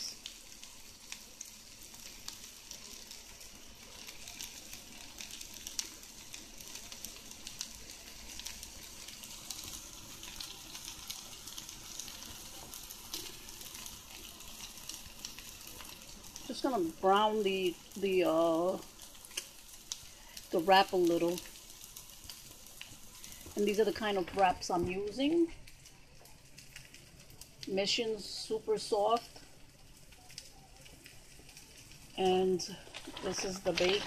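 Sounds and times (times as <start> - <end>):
vegetables sizzling in a frying pan: 0.0 - 34.0.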